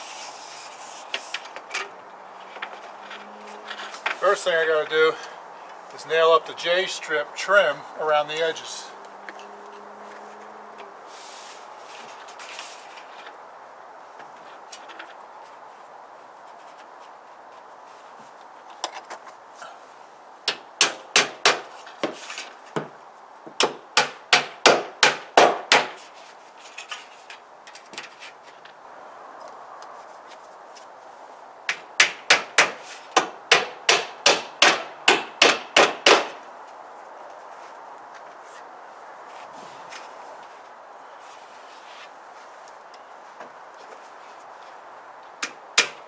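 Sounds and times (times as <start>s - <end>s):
hammer driving nails: 20.5s - 22.2s, 23.6s - 26.0s, 31.7s - 36.4s, 45.4s - 46.0s.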